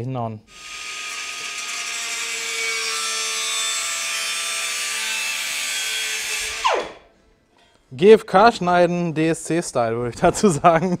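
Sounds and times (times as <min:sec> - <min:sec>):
cut-off disc grinding: 0:00.5 - 0:07.1.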